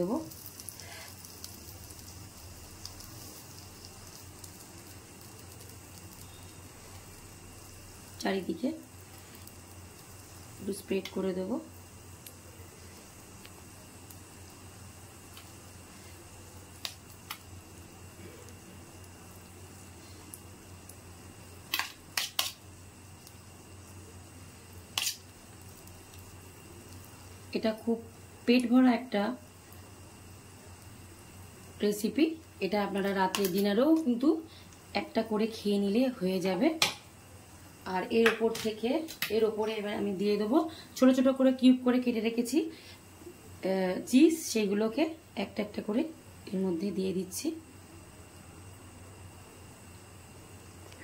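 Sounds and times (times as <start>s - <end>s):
batter sizzling in hot oil: 0.0s - 51.0s.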